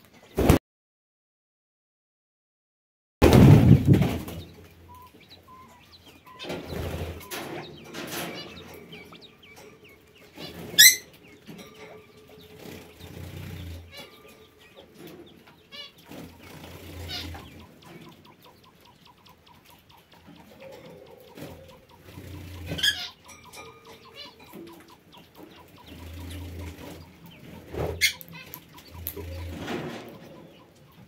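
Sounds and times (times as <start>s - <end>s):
birds chirping and calling: 3.7s - 31.0s
loud sharp bird call: 10.8s - 11.1s.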